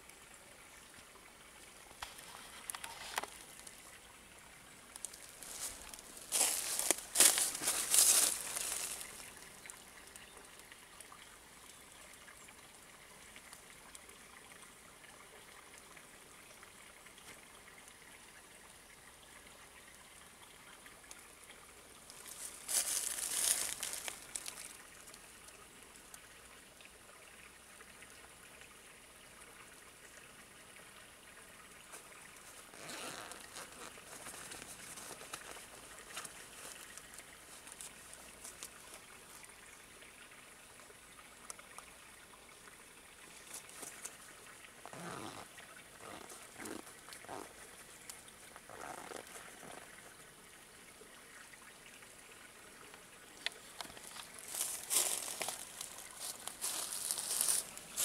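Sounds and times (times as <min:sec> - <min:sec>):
rustling: 0:05.0 - 0:09.3, 0:22.2 - 0:24.7, 0:31.9 - 0:39.0, 0:53.7 - 0:58.0.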